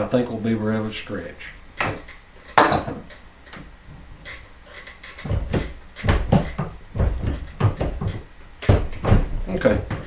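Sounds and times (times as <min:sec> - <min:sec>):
dull heavy knocks: 0:05.1 - 0:10.0.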